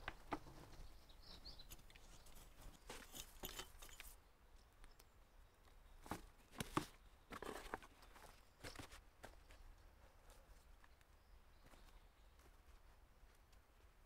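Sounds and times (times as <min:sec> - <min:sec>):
faint bird chirps: 0:00.1 - 0:02.5
hand tool scraping soil: 0:01.5 - 0:04.2, 0:06.6 - 0:08.9.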